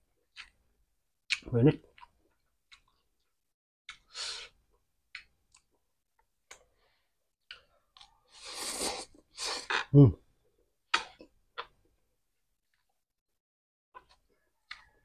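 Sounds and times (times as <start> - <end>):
noodle slurp: 8.3 - 9.9.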